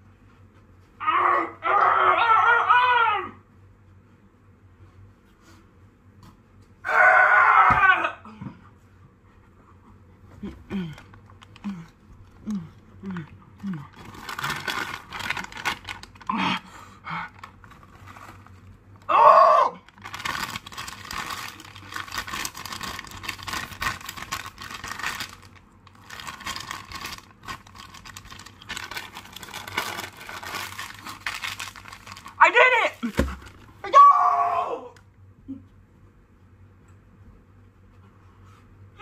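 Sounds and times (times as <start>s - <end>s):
person moaning: 10.4s - 14.7s, 16.2s - 17.4s
chip bag crinkling: 10.8s - 12.2s, 13.0s - 16.6s, 17.3s - 19.1s, 19.8s - 33.8s
loud vocal outburst: 33.8s - 35.0s.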